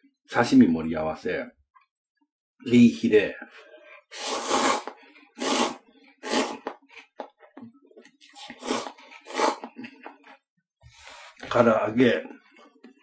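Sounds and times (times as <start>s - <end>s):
noodles slurped: 4.1s - 7.2s, 8.1s - 10.2s.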